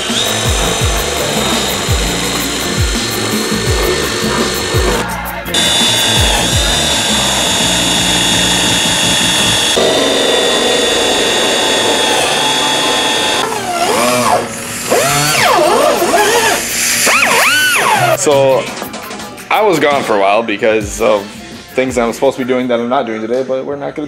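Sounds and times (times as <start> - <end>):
cordless drill whining: 0.0 - 18.2
background music: 0.0 - 24.0.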